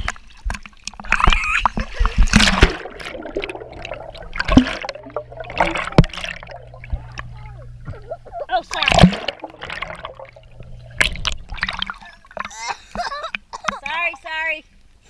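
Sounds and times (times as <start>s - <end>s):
underwater bubbling: 0.0s - 12.8s
water splashing: 0.0s - 13.3s
steady low hum: 2.2s - 12.5s
underwater knocks: 2.3s - 8.1s, 8.8s - 12.6s.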